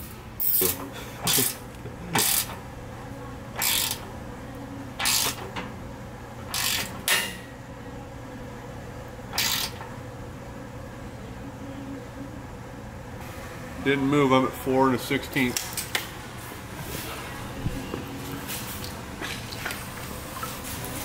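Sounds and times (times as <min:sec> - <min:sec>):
ratcheting wrench clicking: 0:00.4 - 0:01.6, 0:02.2 - 0:02.6, 0:03.6 - 0:04.0, 0:05.0 - 0:05.4, 0:06.5 - 0:07.0, 0:09.4 - 0:09.8.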